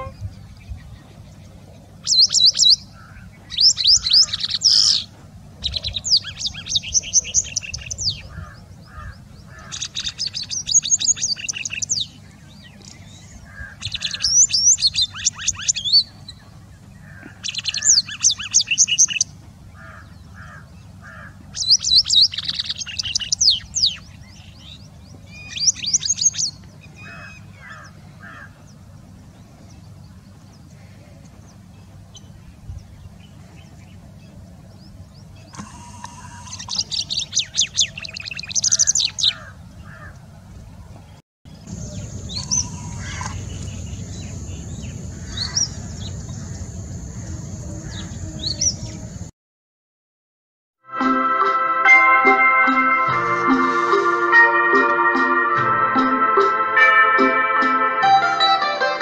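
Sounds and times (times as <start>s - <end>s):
bird chirping song: 0.0s - 49.3s
faint low rumble: 39.8s - 49.3s.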